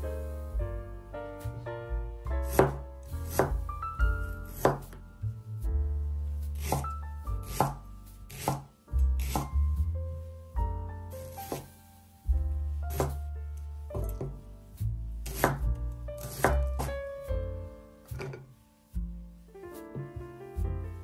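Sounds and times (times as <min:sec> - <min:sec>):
background music: 0:00.0 - 0:21.0
knife chopping on cutting board: 0:02.4 - 0:03.6, 0:04.5 - 0:04.9, 0:06.6 - 0:09.5, 0:11.5 - 0:11.7, 0:12.9 - 0:13.2, 0:15.3 - 0:17.0.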